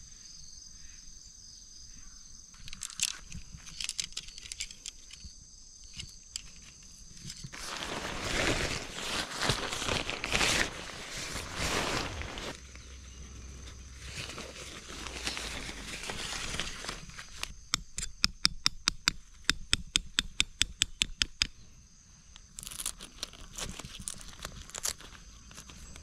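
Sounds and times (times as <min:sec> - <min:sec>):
tent fabric rustling and crinkling: 0:06.5 - 0:17.5, 0:22.6 - 0:26.0.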